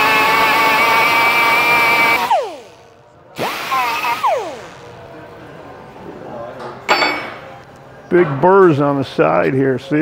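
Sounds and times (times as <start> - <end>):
pneumatic die grinder whining: 0.0 - 5.0.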